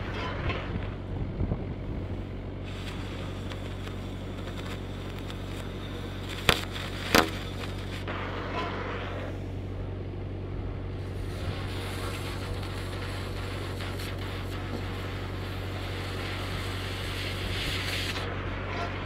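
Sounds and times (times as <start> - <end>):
low hum: 0.0 - 19.0
cutting torch hissing: 2.6 - 9.5, 11.0 - 19.0
sharp pops: 2.9 - 8.1.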